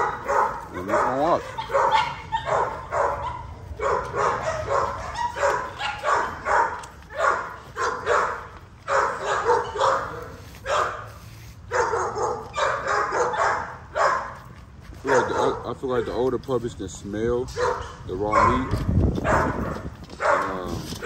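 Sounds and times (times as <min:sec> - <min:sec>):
puppies growling and yipping: 0:00.0 - 0:07.0.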